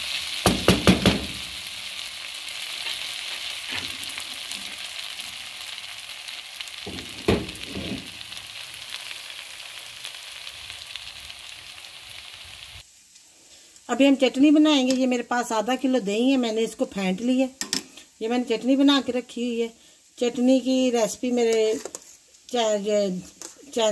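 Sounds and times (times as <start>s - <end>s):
chicken sizzling in a frying pan: 0.0s - 23.9s
spatula knocking on pan: 0.4s - 1.4s, 6.9s - 8.0s.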